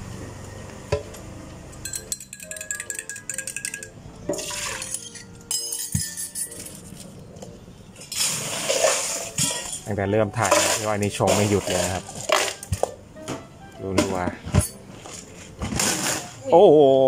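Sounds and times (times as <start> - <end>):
cups or utensils clinking: 1.8 - 7.0, 8.1 - 12.9
music with short notes: 9.0 - 16.4.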